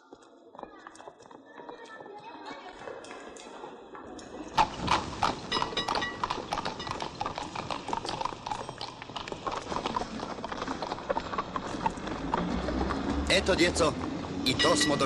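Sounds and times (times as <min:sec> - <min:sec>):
horse hooves clip-clopping on pavement: 0:00.0 - 0:15.0.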